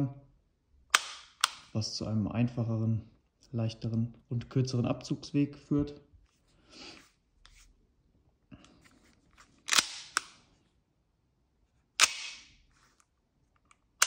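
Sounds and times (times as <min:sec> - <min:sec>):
pistol slide clicks and snaps: 0:00.9 - 0:01.7, 0:09.7 - 0:10.4, 0:12.0 - 0:12.6.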